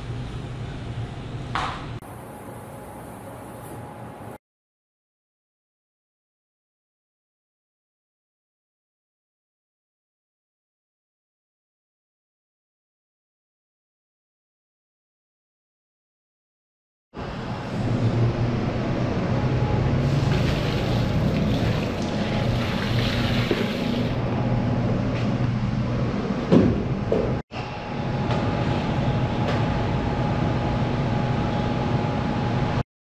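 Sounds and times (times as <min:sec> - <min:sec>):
low mechanical hum: 0:00.0 - 0:04.4, 0:17.2 - 0:32.8.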